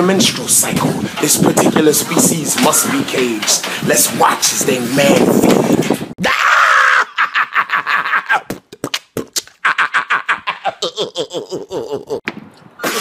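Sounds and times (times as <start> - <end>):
man laughing: 6.2 - 8.8, 9.4 - 13.0.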